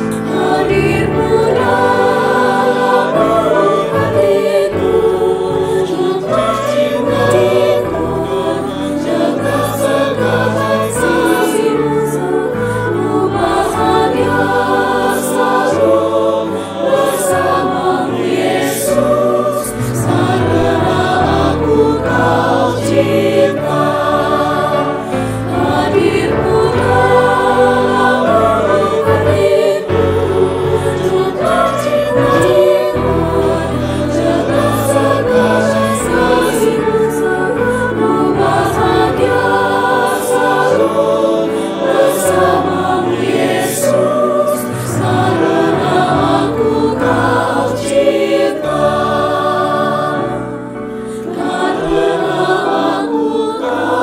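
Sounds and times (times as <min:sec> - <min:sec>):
mixed choir singing a hymn: 0:00.0 - 0:54.0.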